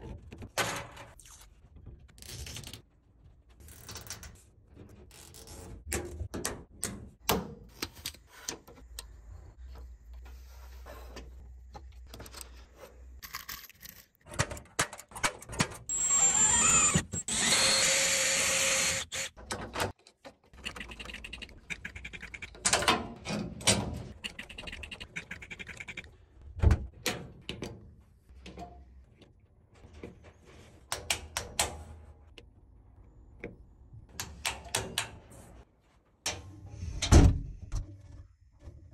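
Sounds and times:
power drill running: 15.9s - 19.3s.

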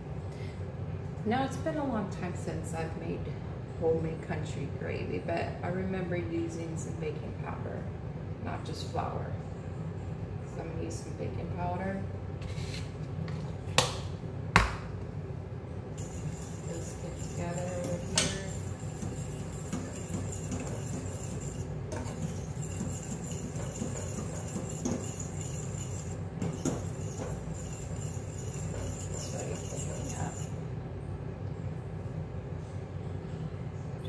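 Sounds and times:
steady low hum: 0.0s - 34.0s
metal spoon clinking against saucepan: 16.0s - 30.5s.

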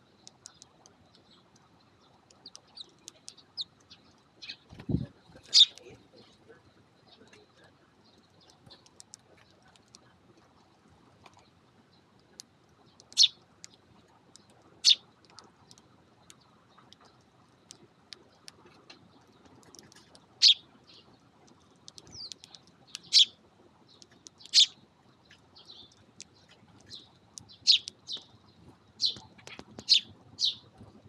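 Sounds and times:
sparrows chirping: 0.0s - 4.7s, 5.5s - 5.8s, 12.8s - 13.4s, 14.4s - 15.0s, 20.4s - 21.1s, 22.0s - 30.7s.

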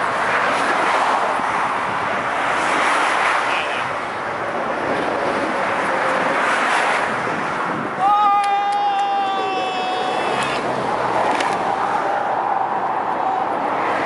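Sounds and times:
road traffic rushing: 0.0s - 14.0s.

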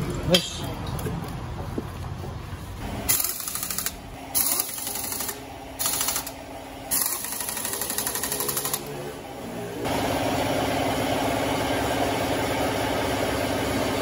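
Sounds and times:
impact wrench hammering: 3.1s - 8.8s.

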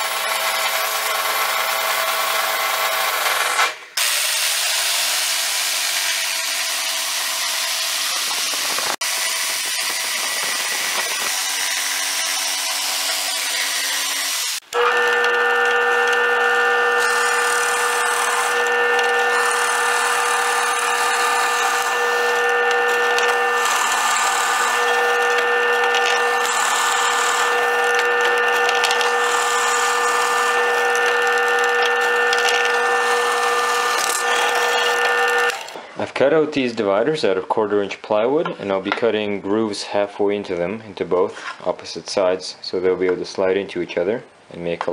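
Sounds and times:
drill bit boring into wood: 0.0s - 35.8s
power saw cutting wood: 0.0s - 35.9s
drill press motor humming: 6.6s - 35.9s.

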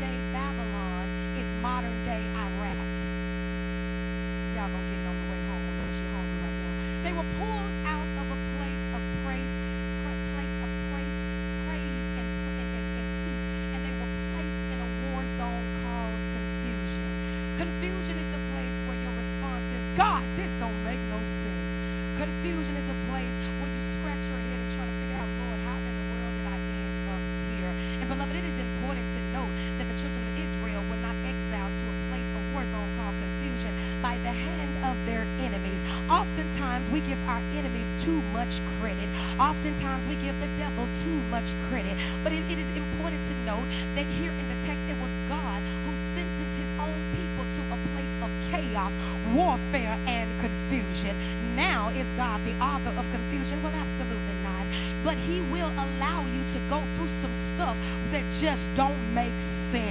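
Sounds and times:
electrical mains hum: 0.0s - 59.9s.

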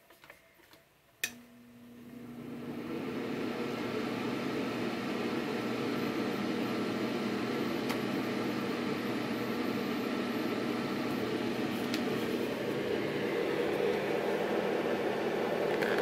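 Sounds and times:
fan heater blowing air: 5.0s - 16.0s.

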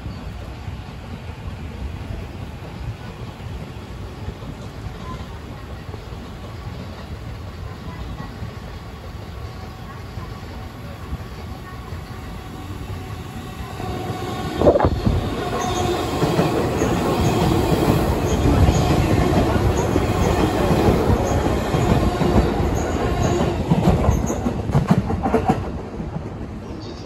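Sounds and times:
train wheels rumbling on rail: 0.0s - 27.0s
clacks over rail joints: 18.6s - 26.4s.

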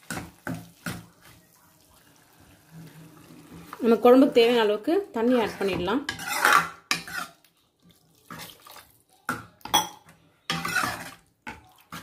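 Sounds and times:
ladle scraping and clinking pan: 5.2s - 7.4s, 9.7s - 12.0s.

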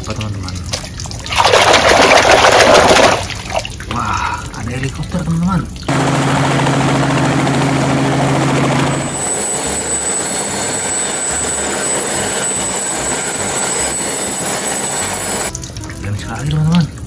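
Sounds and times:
helicopter rotor droning: 5.9s - 15.5s
high steady whine: 5.9s - 15.5s
helicopter hovering: 5.9s - 15.6s.

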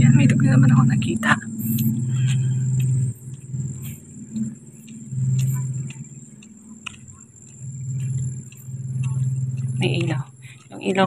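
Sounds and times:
low hum: 0.0s - 11.0s
footsteps on a road: 1.5s - 11.0s.

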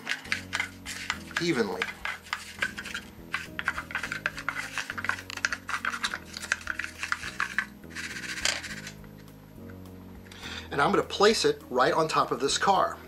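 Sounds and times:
spoon scraping gritty grains: 0.0s - 9.0s.

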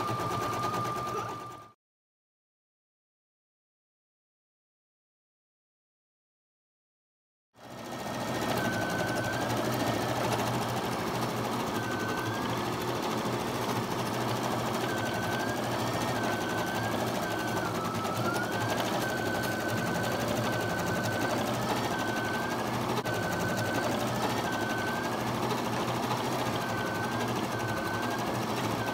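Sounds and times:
embroidery machine whine: 0.0s - 1.8s, 7.6s - 28.9s.

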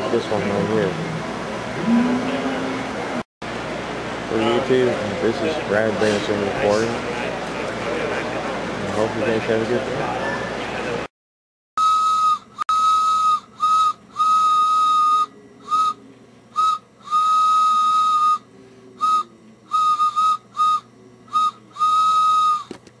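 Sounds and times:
whistle blasts: 11.8s - 22.7s.

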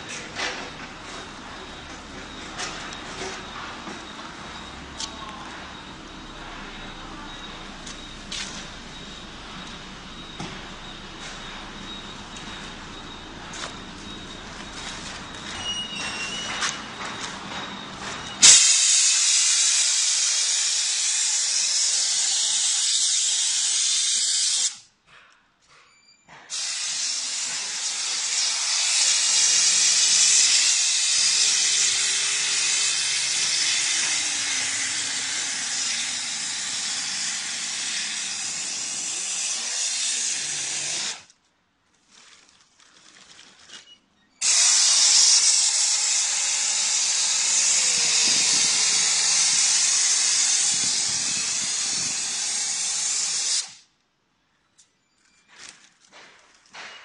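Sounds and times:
hiss of compressed air tool: 18.4s - 24.9s, 26.5s - 41.3s, 44.4s - 53.9s.

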